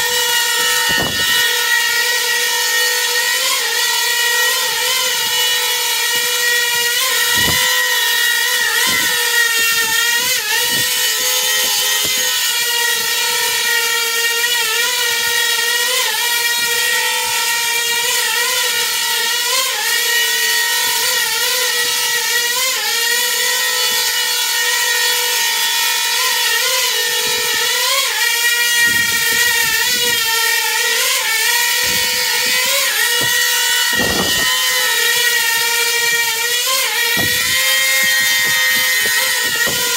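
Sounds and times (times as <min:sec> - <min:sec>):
drone propellers whining: 0:00.0 - 0:13.6, 0:26.6 - 0:39.9.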